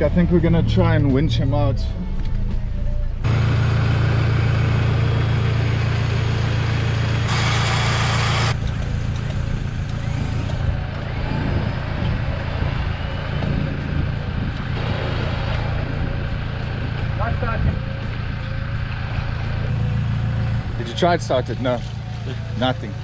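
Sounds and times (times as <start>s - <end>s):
truck engine running: 0.0s - 23.0s
electric winch motor: 3.3s - 17.3s
hiss: 7.3s - 8.5s.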